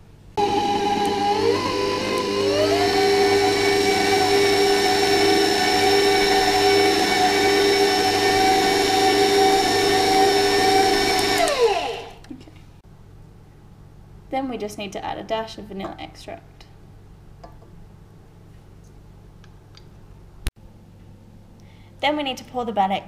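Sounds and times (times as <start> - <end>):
stand mixer motor whine: 0.4 - 12.2.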